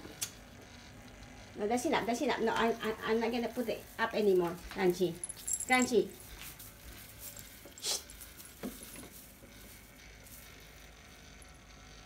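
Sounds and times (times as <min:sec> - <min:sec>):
plastic branches rustling: 0:02.8 - 0:10.5
faint jingling: 0:04.9 - 0:06.3.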